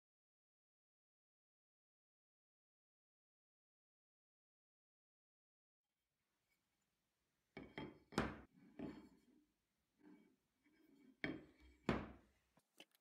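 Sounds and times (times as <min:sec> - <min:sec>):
metal bar knocking on workbench: 0:07.6 - 0:09.1, 0:11.2 - 0:12.2.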